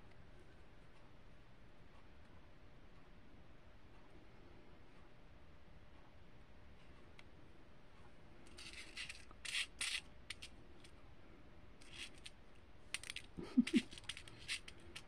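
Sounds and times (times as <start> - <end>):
small metal pieces clicking: 8.5 - 10.5, 11.8 - 12.3, 12.9 - 15.0.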